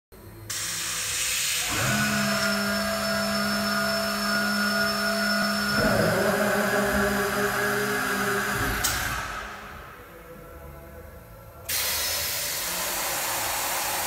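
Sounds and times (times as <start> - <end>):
compressed air hissing: 0.5 - 2.0.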